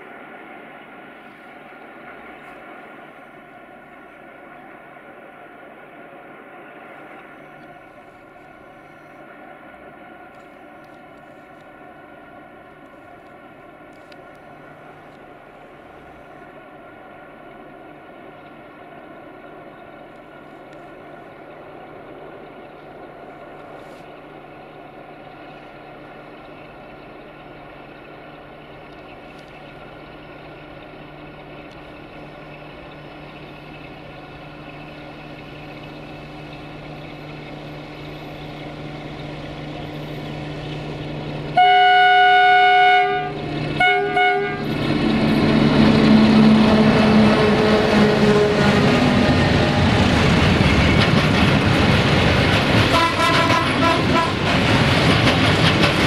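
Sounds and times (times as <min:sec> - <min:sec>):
diesel locomotive engine drone: 0:00.0 - 0:56.0
train wagons rumbling past: 0:00.0 - 0:56.0
locomotive horn blasts: 0:41.6 - 0:48.8, 0:52.9 - 0:54.5.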